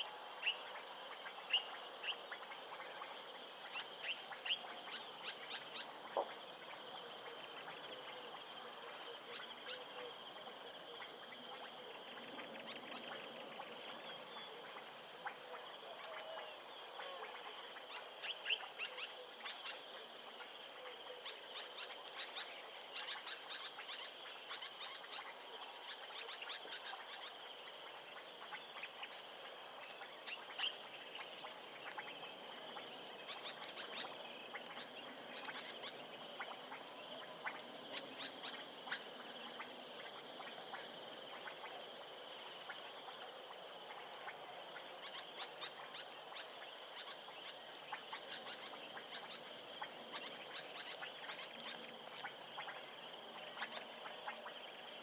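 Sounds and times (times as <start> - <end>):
high-pitched insect trill: 43.6 - 55.0.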